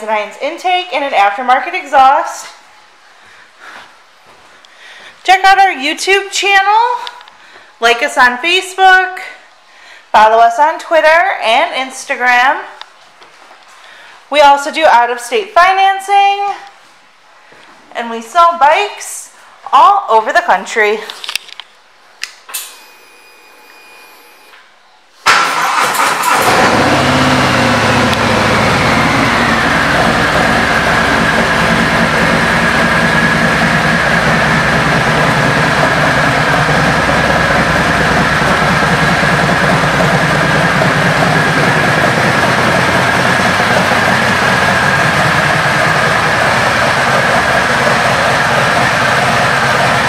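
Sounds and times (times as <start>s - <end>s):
motorcycle starter cranking: 25.3s - 28.3s
motorcycle engine idling: 26.7s - 50.0s.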